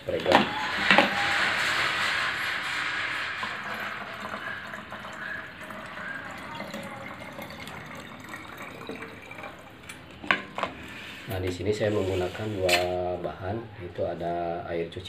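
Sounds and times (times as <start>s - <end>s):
liquid pouring into bottle: 4.2s - 10.1s.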